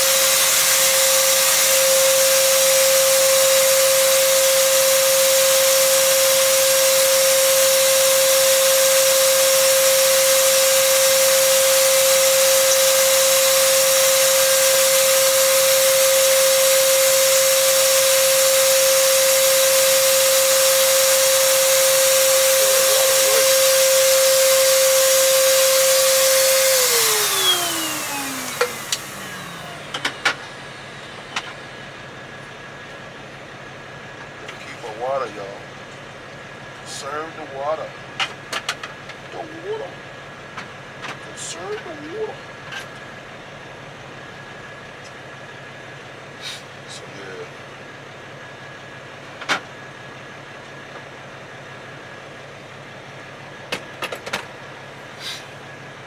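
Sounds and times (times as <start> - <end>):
small electric motor whining: 0.0 - 30.4.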